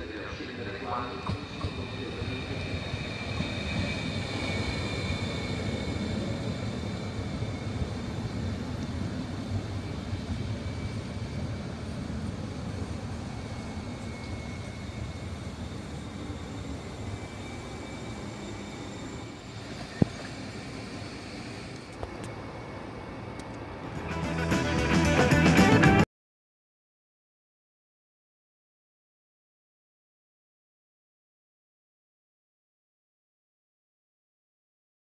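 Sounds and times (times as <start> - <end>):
train wheels and motors rumbling: 0.0 - 24.2
train braking whine: 0.0 - 26.0.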